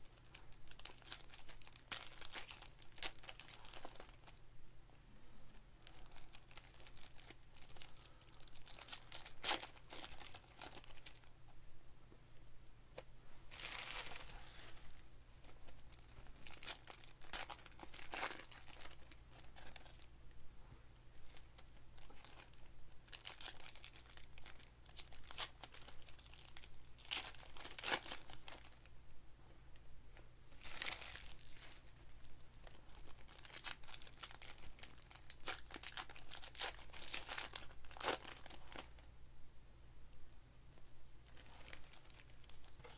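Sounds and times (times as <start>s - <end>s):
foil wrappers crinkling and tearing: 0.0s - 4.4s, 5.8s - 11.2s, 13.5s - 20.1s, 22.0s - 28.8s, 30.6s - 39.0s, 41.3s - 42.8s.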